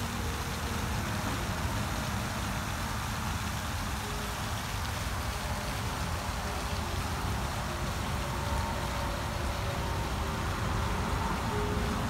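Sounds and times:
fountain spray splashing on water: 0:00.0 - 0:12.0.

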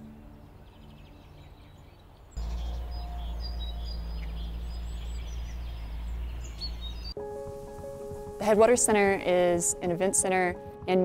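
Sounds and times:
small birds chirping: 0:00.0 - 0:07.2
soft background music: 0:00.0 - 0:11.0
loud steady low rumble: 0:02.4 - 0:07.2.

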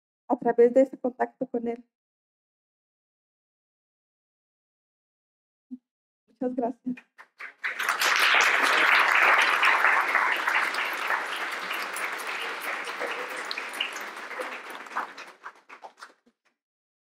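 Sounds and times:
audience applauding: 0:07.2 - 0:16.2.

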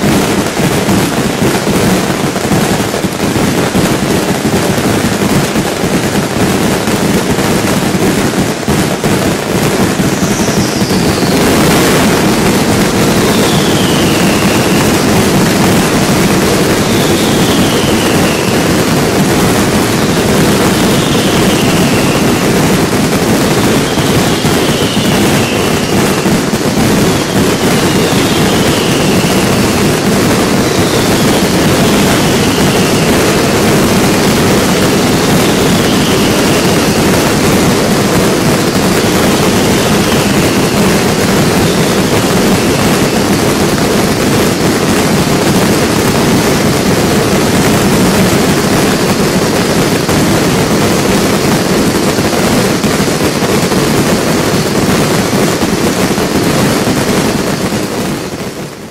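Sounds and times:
fireworks barrage roar: 0:00.0 - 0:58.9
firework whistles falling in pitch: 0:09.9 - 0:44.8.

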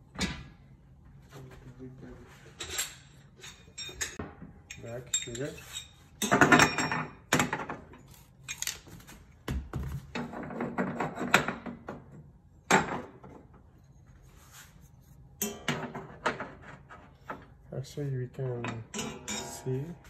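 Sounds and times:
metal grates clanking: 0:18.6 - 0:19.8.

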